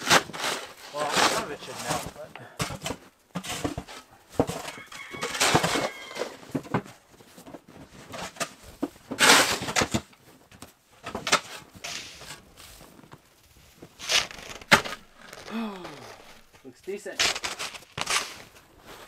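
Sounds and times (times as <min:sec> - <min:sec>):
metal shovel scraping snow: 0:00.0 - 0:02.2, 0:09.1 - 0:09.8, 0:11.4 - 0:13.0, 0:13.8 - 0:19.0.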